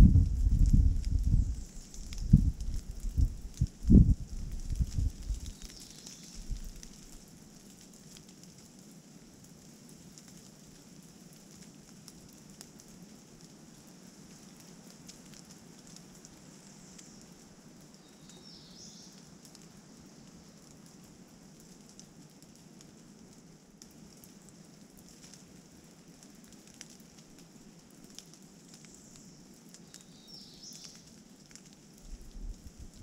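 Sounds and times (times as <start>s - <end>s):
wind buffeting microphone: 0.0s - 5.5s, 32.1s - 33.0s
light rain hiss: 0.0s - 33.0s
faint drip ticks: 0.3s - 33.0s.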